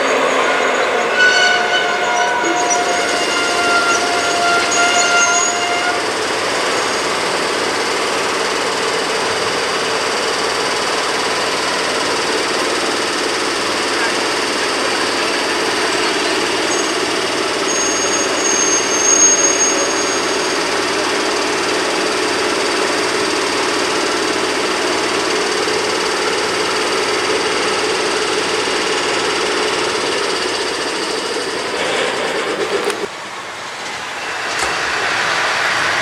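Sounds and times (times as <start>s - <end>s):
locomotive engine drone: 0.0s - 36.0s
high thin whistle: 0.4s - 6.0s, 17.7s - 20.6s.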